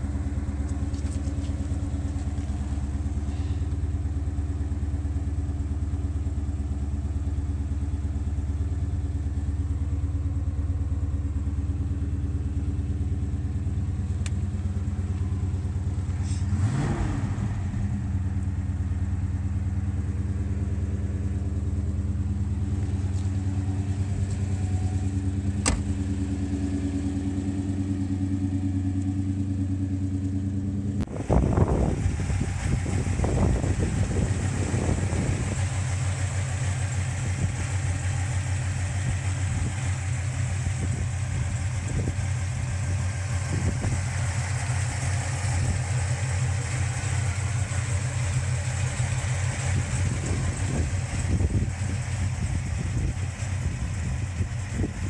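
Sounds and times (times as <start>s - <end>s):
car engine idling: 0.0s - 55.0s
engine revving: 16.2s - 18.2s.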